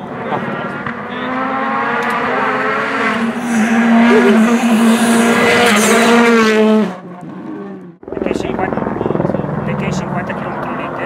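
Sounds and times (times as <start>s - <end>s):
rally car engine at high revs: 0.0s - 8.0s.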